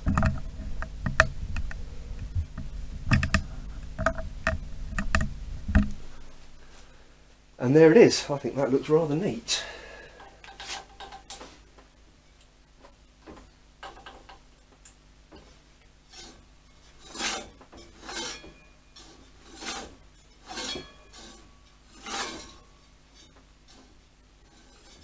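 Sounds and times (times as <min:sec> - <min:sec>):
faint low hum: 0:00.0 - 0:25.0
hands scraping on brake: 0:16.1 - 0:25.0.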